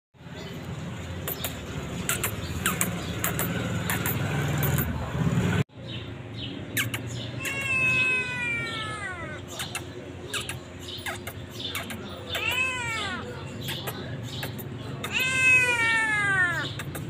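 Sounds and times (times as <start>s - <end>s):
kitten meowing: 7.4s - 9.5s, 12.3s - 13.3s, 15.0s - 17.0s.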